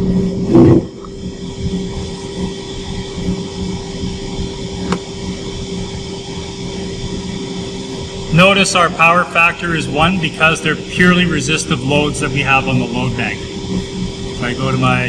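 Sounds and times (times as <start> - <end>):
steam turbine generator humming: 0.0 - 15.0.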